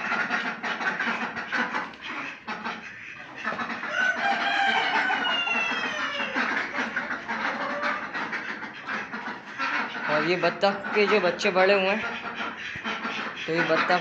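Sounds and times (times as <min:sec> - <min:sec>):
rooster crowing: 0:03.8 - 0:06.5.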